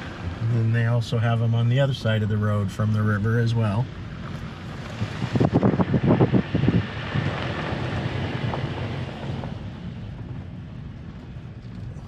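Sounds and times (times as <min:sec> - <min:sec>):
vehicle road noise: 0:00.0 - 0:12.0
wind rushing over microphone: 0:04.5 - 0:12.0.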